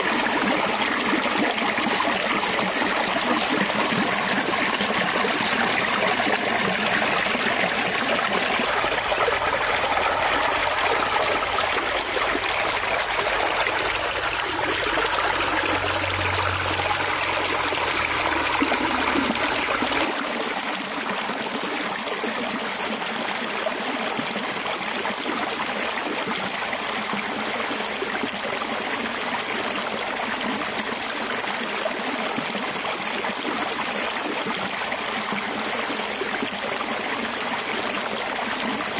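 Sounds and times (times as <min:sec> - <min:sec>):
water rushing over rocks: 0:00.0 - 0:21.6.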